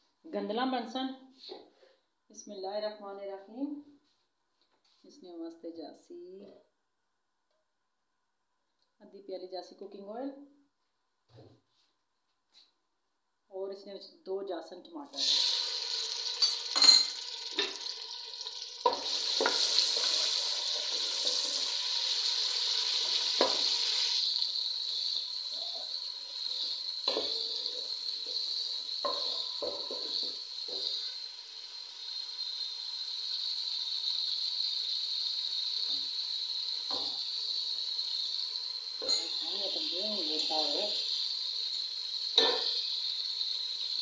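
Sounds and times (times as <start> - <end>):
tomatoes sizzling in oil: 15.1 - 44.0.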